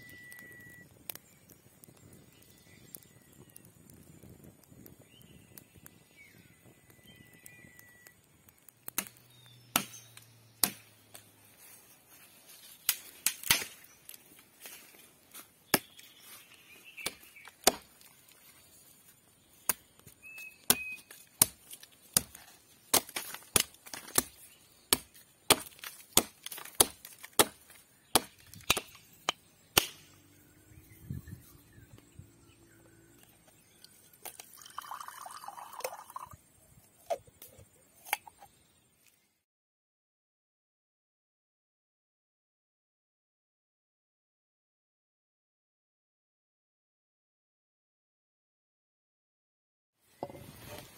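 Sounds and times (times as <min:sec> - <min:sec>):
faint bird whistle: 0:00.0 - 0:00.9, 0:05.1 - 0:08.2, 0:20.2 - 0:21.1
blade chopping wood: 0:08.9 - 0:11.2, 0:12.9 - 0:13.8, 0:17.0 - 0:18.0, 0:20.4 - 0:30.1.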